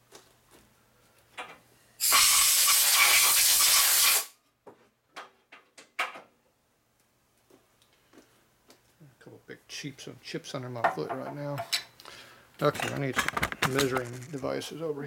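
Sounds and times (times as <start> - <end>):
compressed air blow gun hissing: 2.0 - 4.3.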